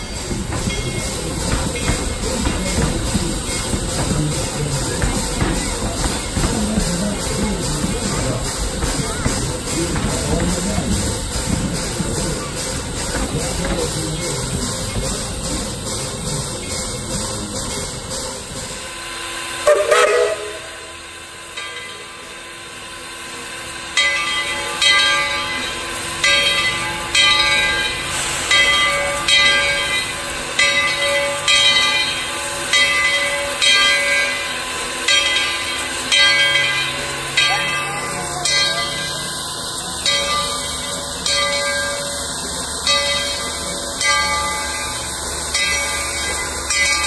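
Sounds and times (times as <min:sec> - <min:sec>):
locomotive bell ringing: 0:00.0 - 0:47.0
steam hissing: 0:00.0 - 0:47.0
steam locomotive whistle: 0:19.2 - 0:21.0.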